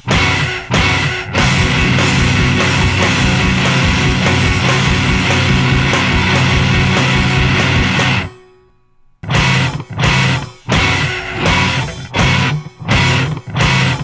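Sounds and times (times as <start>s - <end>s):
drums: 0.0s - 8.4s, 9.2s - 14.0s
distorted electric guitar: 0.0s - 8.6s, 9.2s - 14.0s.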